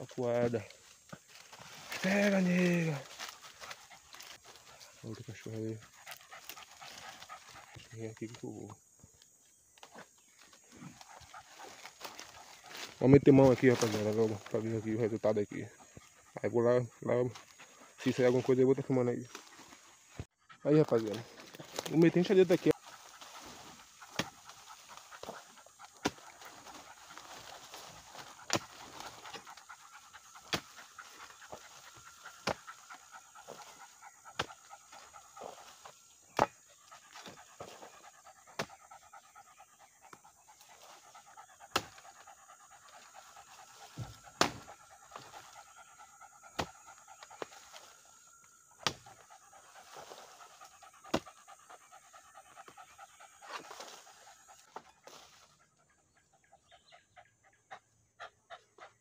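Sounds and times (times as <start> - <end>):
dog panting: 3.1 - 8.0, 10.8 - 12.8, 14.1 - 18.4, 22.3 - 48.1, 49.0 - 54.8, 55.5 - 59.0
hoe striking earth: 25.2 - 26.2, 28.4 - 29.1, 41.7 - 42.0, 44.0 - 44.7, 48.8 - 49.1.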